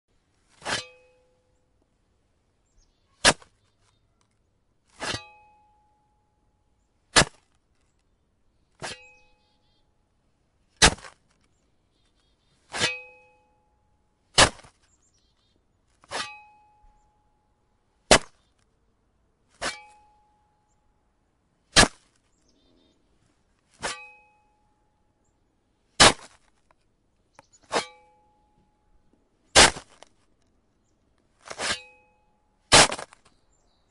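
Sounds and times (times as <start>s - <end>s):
shovel striking icy snow: 0.5s - 1.0s, 3.2s - 3.6s, 4.9s - 5.4s, 7.1s - 7.6s, 8.8s - 9.2s, 10.8s - 11.2s, 12.7s - 13.1s, 14.3s - 14.8s, 16.0s - 16.5s, 18.1s - 18.4s, 19.6s - 20.0s, 21.7s - 22.1s, 23.7s - 24.2s, 26.0s - 26.5s, 27.6s - 28.0s, 29.6s - 30.1s, 31.4s - 32.0s, 32.7s - 33.4s.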